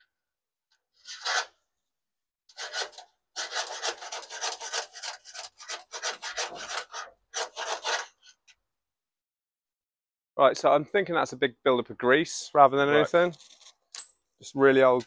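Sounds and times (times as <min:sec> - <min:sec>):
cable rasping in metal tube: 0:01.0 - 0:01.6, 0:02.5 - 0:08.4.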